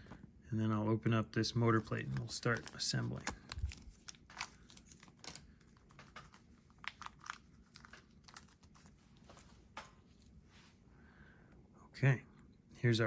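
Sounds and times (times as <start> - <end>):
plastic bag crinkling: 1.7 - 9.5.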